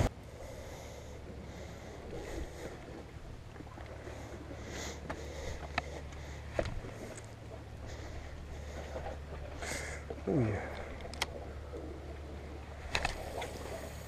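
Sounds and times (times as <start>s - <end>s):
light clicks: 10.7s - 11.4s, 12.9s - 13.5s.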